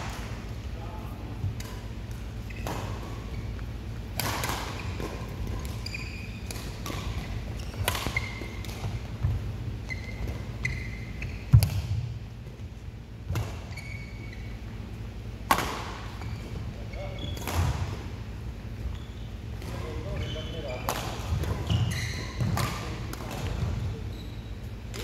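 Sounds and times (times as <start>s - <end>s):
shoes squeaking on court floor: 0.0s - 25.0s
racket hitting shuttlecock: 1.4s - 9.5s, 11.4s - 12.1s, 15.4s - 16.2s, 17.3s - 18.1s, 20.8s - 23.8s.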